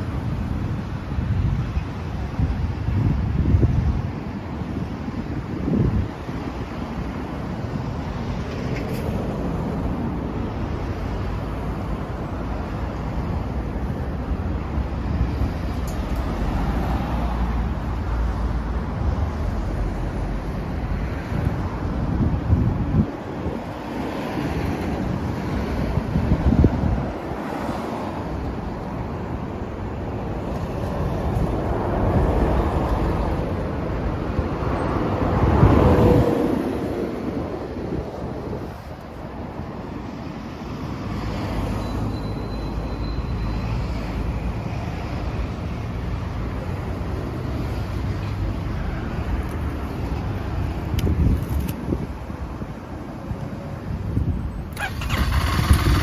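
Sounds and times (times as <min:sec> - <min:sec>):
motorcycle engine idling: 0:54.8 - 0:56.0.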